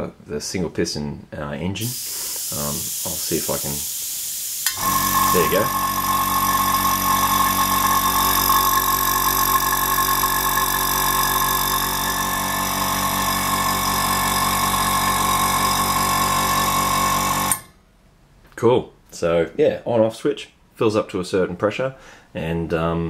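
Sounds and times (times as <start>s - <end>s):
air compressor running: 1.8s - 17.7s.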